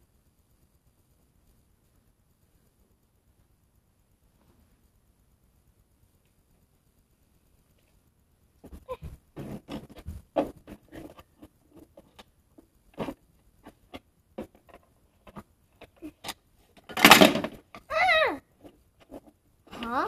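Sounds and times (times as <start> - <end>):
plastic toys clicking and tapping: 9.4 - 20.0.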